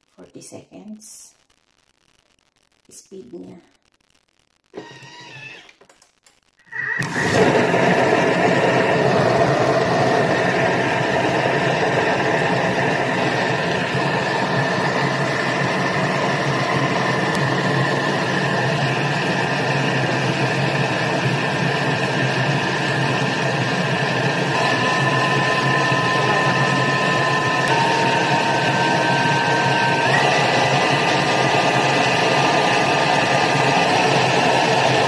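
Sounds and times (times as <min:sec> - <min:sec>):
kitchen mixer motor whining: 0:04.8 - 0:05.8, 0:06.7 - 0:35.0.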